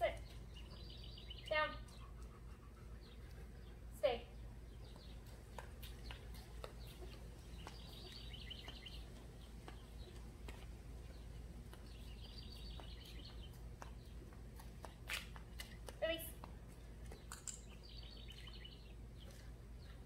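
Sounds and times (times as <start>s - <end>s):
faint low outdoor background: 0.0s - 20.0s
songbird trilling: 7.8s - 9.0s.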